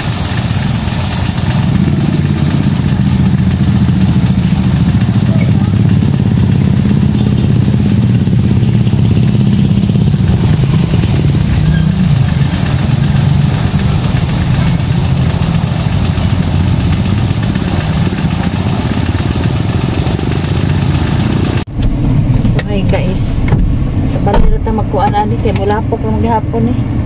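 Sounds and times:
water spray hiss: 0:00.0 - 0:21.6
pressure washer motor drone: 0:00.0 - 0:24.8.

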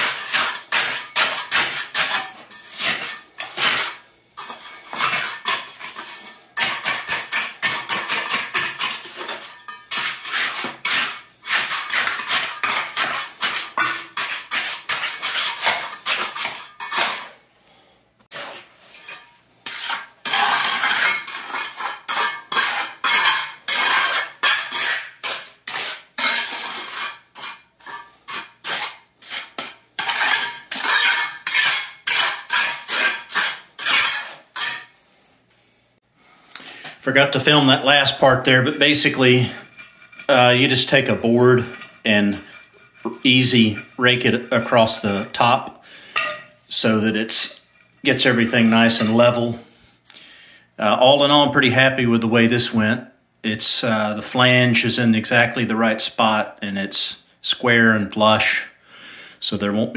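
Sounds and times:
trowel scraping concrete: 0:00.0 - 0:17.4, 0:18.3 - 0:35.0, 0:37.0 - 0:49.8.

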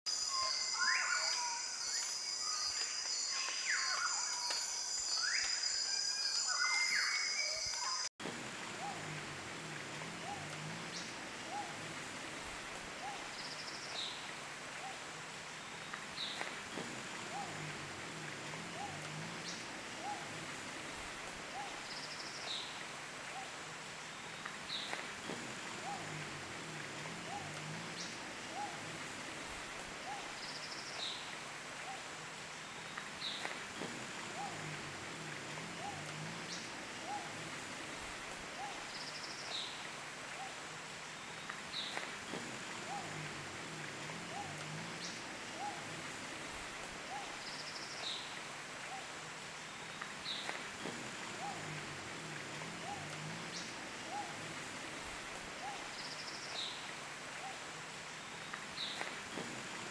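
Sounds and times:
high chirps: 0:00.1 - 0:08.1
intro music with chiming tones: 0:00.1 - 0:08.1
steady forest hiss: 0:00.1 - 0:59.9.

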